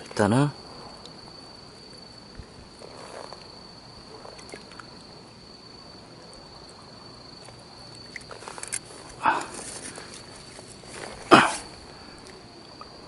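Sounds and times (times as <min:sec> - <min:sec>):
wet rope rustles and clicks: 0:07.4 - 0:12.9.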